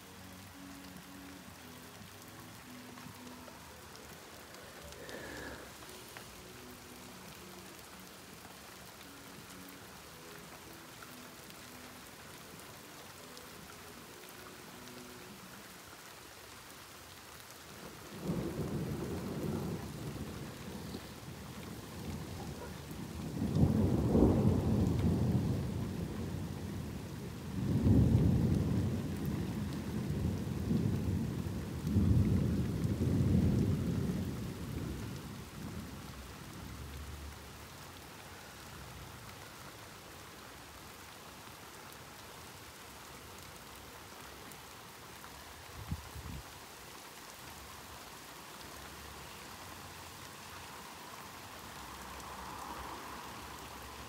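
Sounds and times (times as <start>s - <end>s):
steady rain falling: 0.0s - 54.0s
thunder rumbling: 18.0s - 36.1s.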